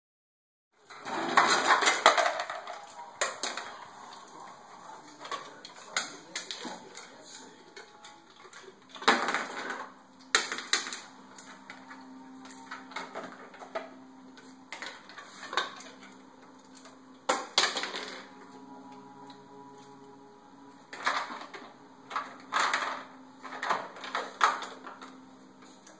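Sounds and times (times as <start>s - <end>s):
ice clattering from dispenser: 0.9s - 3.7s.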